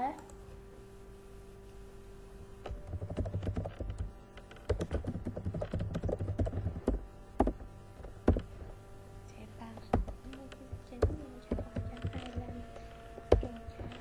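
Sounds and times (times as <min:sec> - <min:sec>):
computer keyboard typing: 0:02.7 - 0:07.6, 0:08.3 - 0:08.5, 0:09.8 - 0:12.6, 0:13.2 - 0:14.0.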